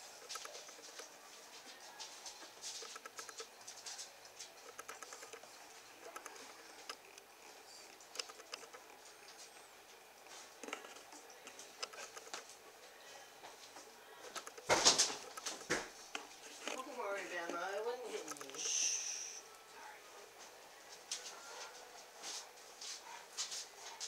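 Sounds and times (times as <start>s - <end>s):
puppies pattering on towel: 0.0s - 4.7s.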